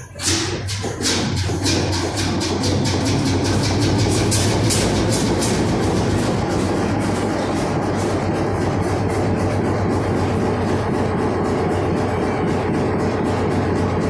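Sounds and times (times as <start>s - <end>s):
stationary engine exhaust beating: 0.0s - 14.0s.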